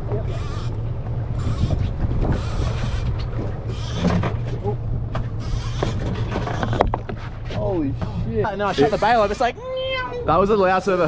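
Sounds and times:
low rumble: 0.0 - 8.7
fishing reel drag screaming: 0.3 - 0.8, 1.4 - 3.0, 3.7 - 4.2, 5.4 - 6.8, 8.7 - 9.6, 10.7 - 11.0.

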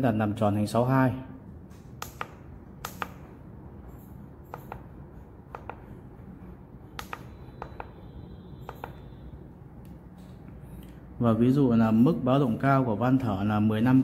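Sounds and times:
push buttons clicking: 1.7 - 3.3, 6.9 - 8.0, 8.6 - 9.2.

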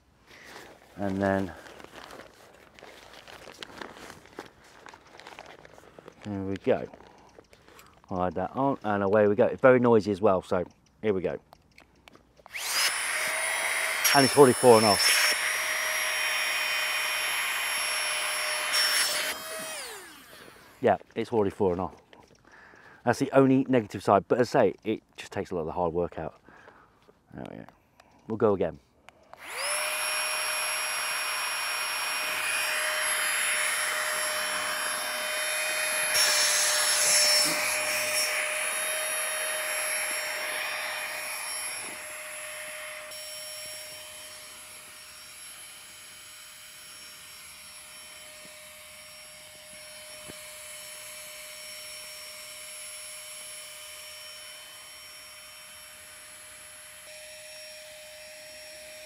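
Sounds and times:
electric air pump whine: 12.4 - 20.8, 29.3 - 59.0.

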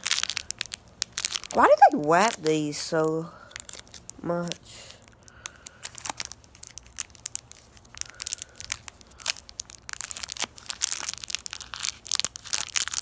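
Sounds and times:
wrapper crinkling: 0.0 - 13.0.

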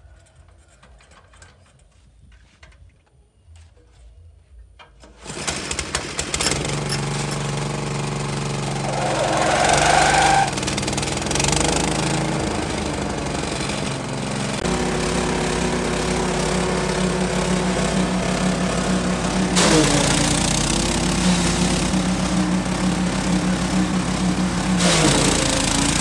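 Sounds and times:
grass chopper spinning: 5.3 - 26.0
petrol engine running: 5.4 - 26.0.

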